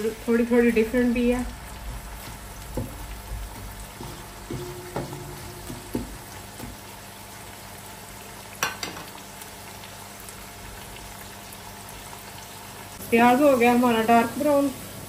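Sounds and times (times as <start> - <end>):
onions sizzling in hot oil: 0.0 - 15.0
sharp knocks: 4.0 - 6.8.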